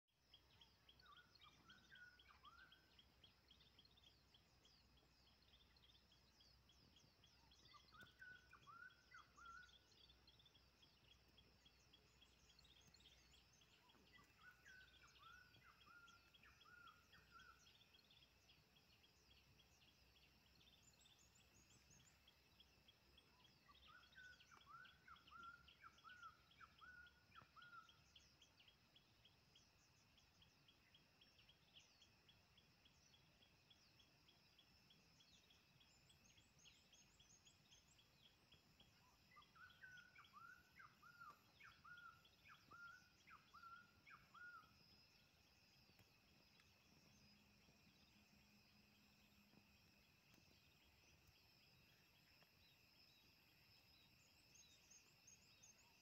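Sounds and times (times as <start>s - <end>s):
insects chirping: 0.2s - 56.0s
songbird warbling: 7.2s - 18.5s, 19.2s - 28.3s, 39.0s - 49.5s.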